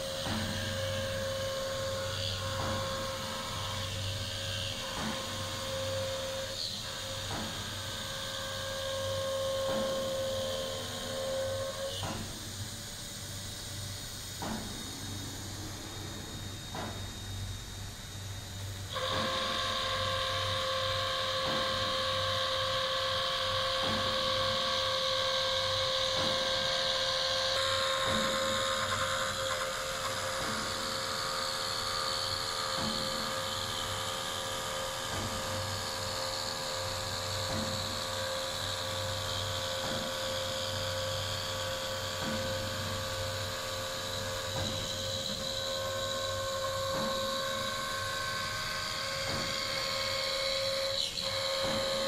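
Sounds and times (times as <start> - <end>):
machine spindle whining: 14.8 - 52.0.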